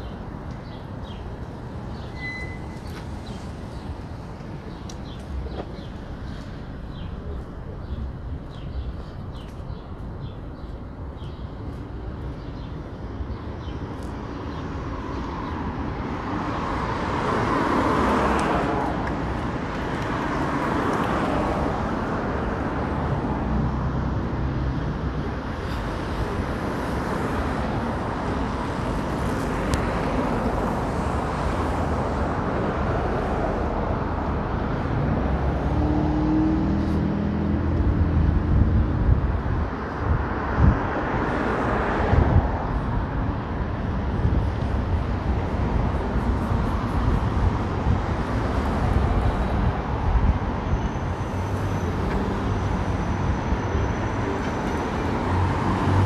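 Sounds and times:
cars passing: 0.0s - 56.0s.

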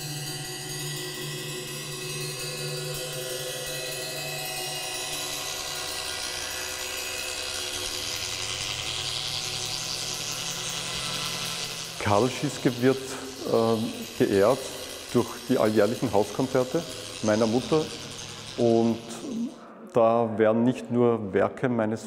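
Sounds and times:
suspended cymbal shimmering: 0.0s - 20.0s.

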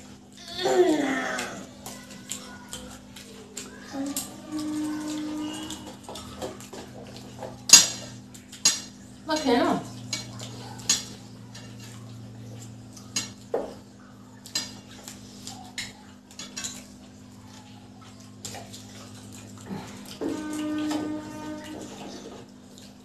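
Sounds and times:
chewing sounds: 0.0s - 9.2s, 9.8s - 23.0s
clinks on bowl and plates: 1.4s - 17.2s, 18.6s - 22.5s.

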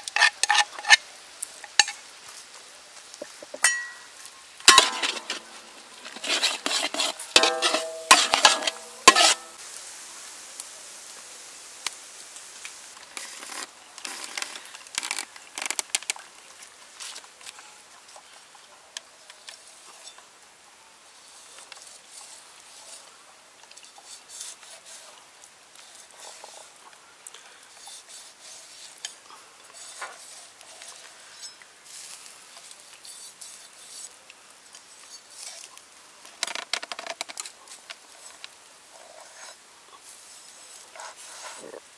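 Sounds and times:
spatula scraping metal pan: 0.0s - 1.0s, 4.7s - 9.6s.

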